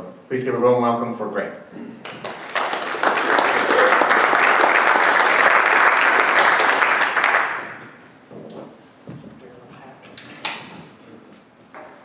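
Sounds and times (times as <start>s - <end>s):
audience applauding: 2.0s - 8.0s.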